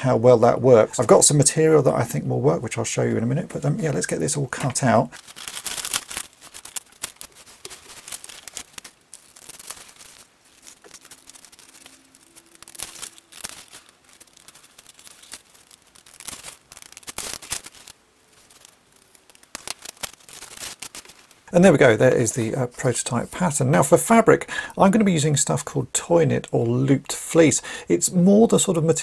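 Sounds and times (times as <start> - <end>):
paper rustling: 3.9 - 21.5
scissors snipping paper: 5.2 - 21.2.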